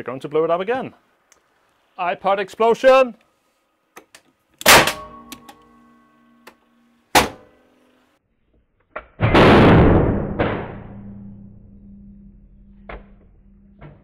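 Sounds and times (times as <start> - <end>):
loud sharp bang with ringing: 4.7 - 5.3, 9.2 - 12.1
long loud crash: 9.2 - 11.6.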